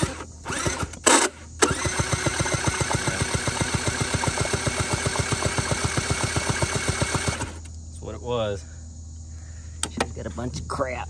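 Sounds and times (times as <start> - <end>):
scooter engine cranking: 0.0 - 7.7.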